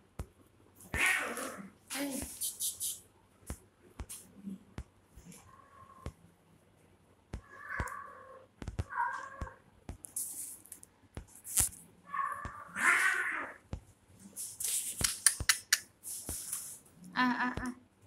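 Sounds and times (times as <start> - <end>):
kittens meowing and yowling: 0.9 - 1.7, 7.4 - 9.6, 12.1 - 13.6
hiss-like noise: 10.1 - 10.8, 14.2 - 16.9.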